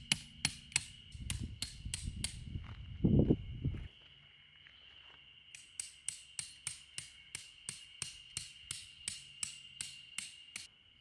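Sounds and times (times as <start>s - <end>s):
tent peg hammered into gravel: 0.0s - 2.4s, 5.6s - 10.7s.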